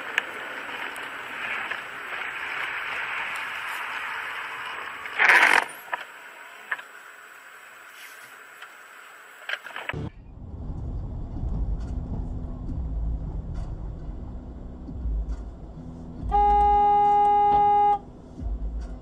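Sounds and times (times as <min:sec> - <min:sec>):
car interior road rumble: 0:00.0 - 0:19.0
car horn blast: 0:16.2 - 0:18.1.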